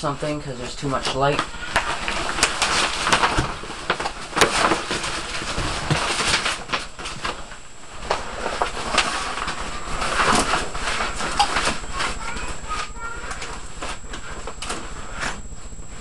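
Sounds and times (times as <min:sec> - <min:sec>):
curtain rustling and scraping: 0:00.0 - 0:16.0.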